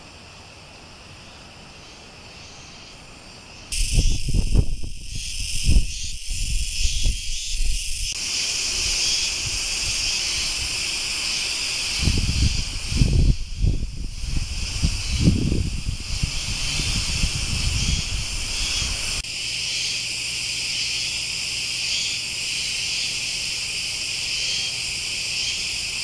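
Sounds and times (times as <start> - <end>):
cicadas chirping: 0.0 - 26.0
low rumbling on microphone: 12.0 - 19.2.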